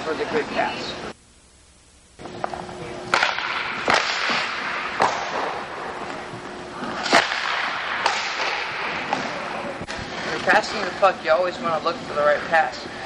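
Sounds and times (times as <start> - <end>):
hockey sticks cracking pucks: 3.1 - 6.2, 6.8 - 11.0.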